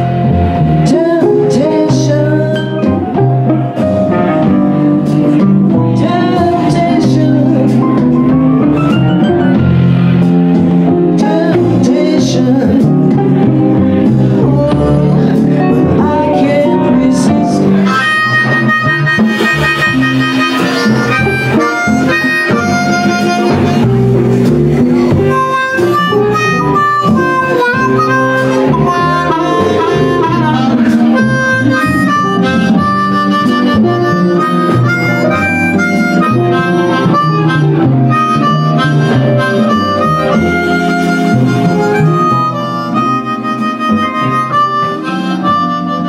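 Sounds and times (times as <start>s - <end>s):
electric guitar accompaniment: 0.0s - 46.0s
blues harmonica solo: 13.0s - 46.0s.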